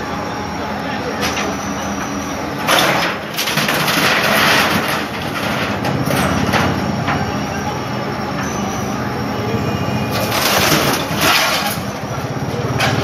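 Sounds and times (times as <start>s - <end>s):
excavator engine running: 0.0s - 13.0s
corrugated metal crashing and scraping: 2.6s - 7.2s, 10.1s - 12.0s.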